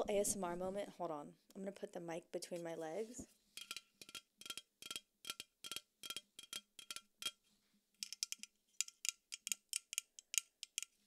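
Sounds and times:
fingernails tapping on metal can: 3.6 - 7.4, 8.0 - 11.0.

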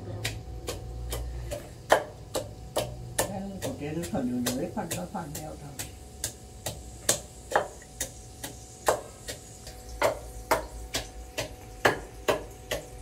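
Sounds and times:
pestle pounding in a mortar: 0.0 - 13.0.

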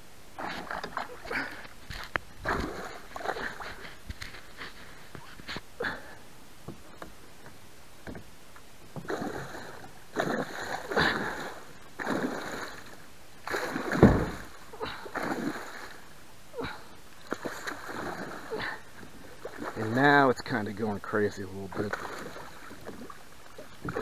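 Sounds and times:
fish thrashing and splashing: 0.4 - 5.5, 9.0 - 16.0, 17.2 - 20.0, 21.7 - 24.0
deep thump: 13.9 - 14.5.

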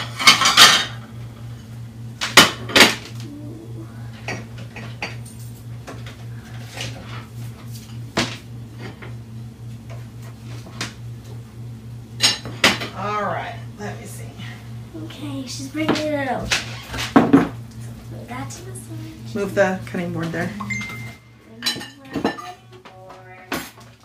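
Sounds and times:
dishes and cupboards clinking: 0.0 - 1.1, 4.2 - 9.2, 12.2 - 13.1, 20.3 - 24.0
steady low hum: 0.0 - 24.0.

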